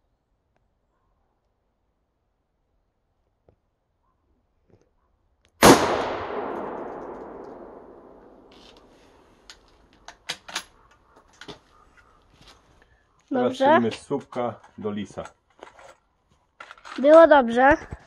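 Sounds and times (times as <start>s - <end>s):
rifle shot with echo: 5.6s - 9.2s
rifle bolt clicks: 6.3s - 8.9s.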